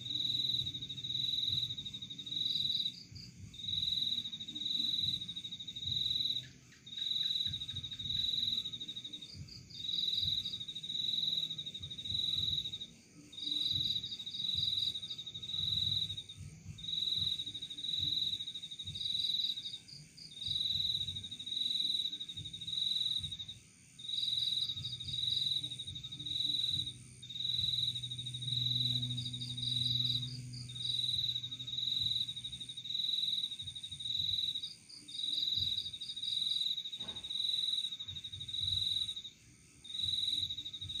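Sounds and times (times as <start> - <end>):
crickets chirping: 0.0 - 41.0
higher insect trill: 0.0 - 41.0
faint low rumble: 24.7 - 34.4.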